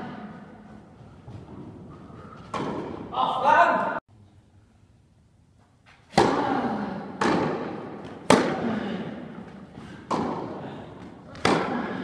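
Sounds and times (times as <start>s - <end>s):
tennis ball struck by rackets: 6.1s - 6.5s, 7.2s - 8.8s, 9.9s - 12.0s.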